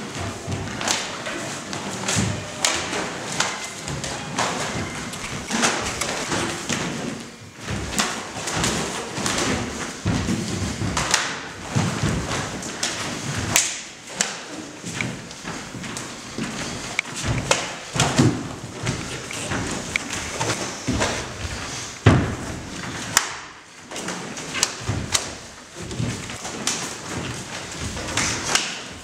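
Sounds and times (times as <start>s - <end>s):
bare feet stepping on mat: 0.0s - 14.0s.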